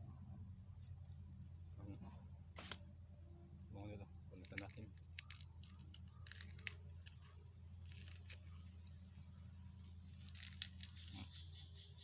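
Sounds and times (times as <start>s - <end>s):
plant fibers tearing and snapping: 4.4s - 9.0s, 9.8s - 11.3s.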